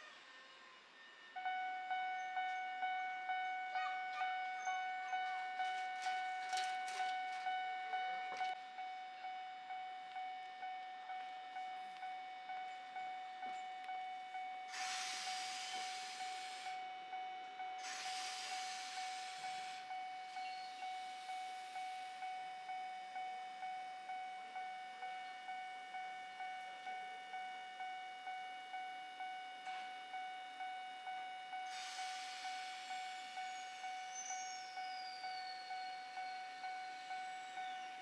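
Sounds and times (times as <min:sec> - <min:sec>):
train air hissing: 0:14.7 - 0:16.8, 0:17.8 - 0:22.0, 0:31.6 - 0:35.0.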